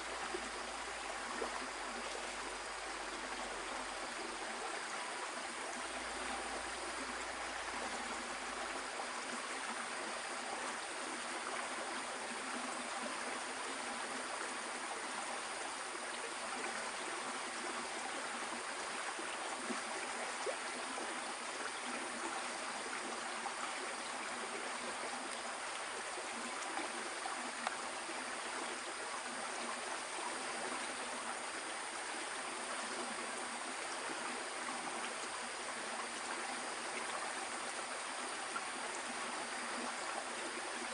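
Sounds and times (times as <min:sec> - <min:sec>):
stream water flowing: 0:00.0 - 0:40.9
faint clicks: 0:27.6 - 0:27.8.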